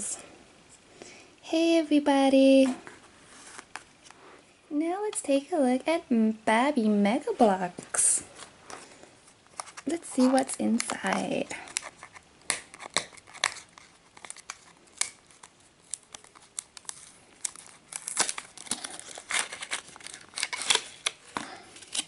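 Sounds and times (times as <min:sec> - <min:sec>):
plastic insert crinkling: 0:07.8 - 0:22.0.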